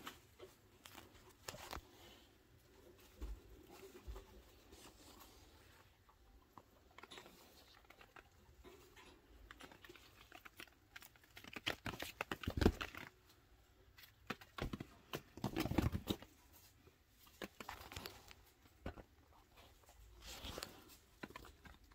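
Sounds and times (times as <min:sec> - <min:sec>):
small animal scampering on paper: 0:07.0 - 0:13.2, 0:13.9 - 0:18.6.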